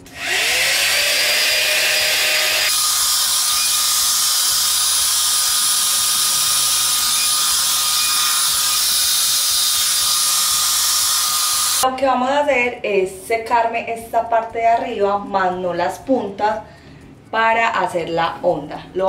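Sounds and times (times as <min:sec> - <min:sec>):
high motor whine: 0:00.0 - 0:11.8
hot air styler blowing: 0:00.0 - 0:11.8.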